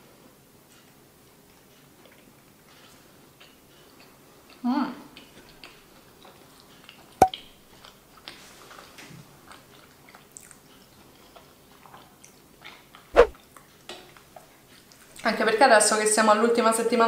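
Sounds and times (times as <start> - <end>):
chewing soft pastry: 0.7 - 7.0, 7.8 - 15.0.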